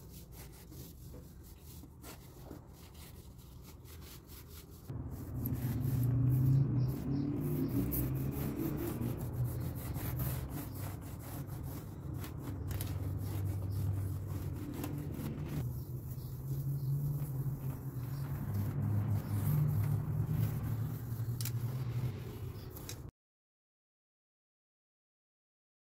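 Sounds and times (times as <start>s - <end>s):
cloth wiping glass: 0.0s - 23.0s
low rumble: 4.9s - 11.2s, 12.3s - 23.0s.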